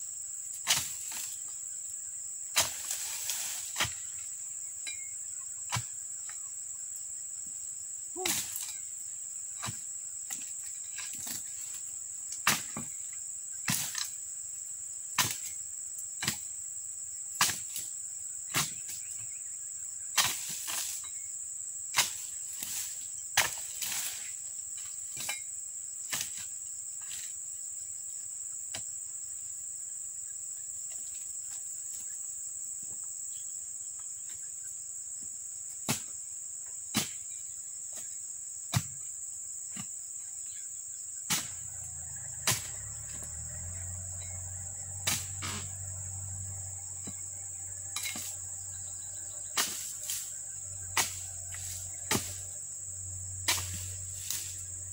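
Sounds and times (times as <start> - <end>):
insect chirring: 0.0 - 54.9
chisel chopping into palm fronds: 2.5 - 4.2, 12.4 - 13.0, 15.2 - 15.6, 17.4 - 17.8, 18.5 - 19.2, 20.2 - 21.0, 21.9 - 24.3, 38.7 - 39.0, 41.3 - 41.7, 42.4 - 43.2, 45.0 - 45.7, 49.5 - 52.6, 53.4 - 54.7.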